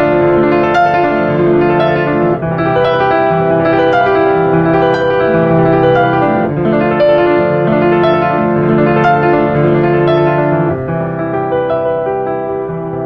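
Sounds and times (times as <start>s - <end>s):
slow keyboard piano chords: 0.0s - 13.0s.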